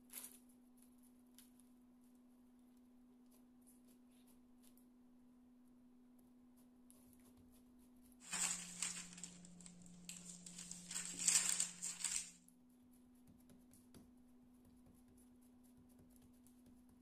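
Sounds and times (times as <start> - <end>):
baking paper rustling and crinkling: 8.2 - 12.4.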